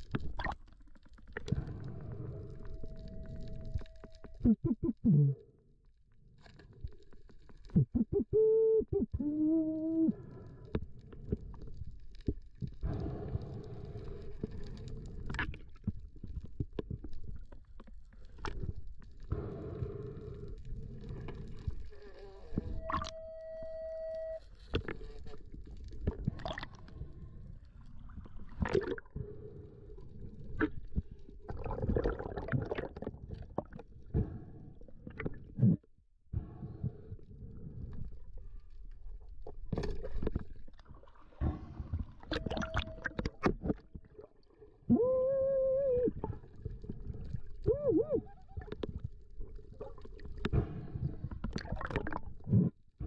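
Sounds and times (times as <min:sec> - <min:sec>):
muffled underwater water rumble: 0:00.0 - 0:53.0
steady beep-like tone: 0:02.6 - 0:05.0, 0:22.8 - 0:24.4, 0:42.3 - 0:43.4
loud wavering tone: 0:22.6 - 0:24.5, 0:42.3 - 0:43.4.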